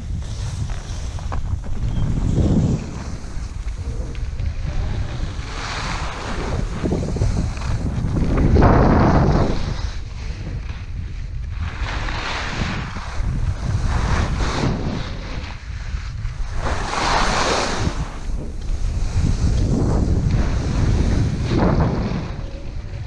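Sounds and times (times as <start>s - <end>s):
skis scraping over snow: 0.0s - 23.0s
wind rushing over microphone: 0.0s - 23.0s.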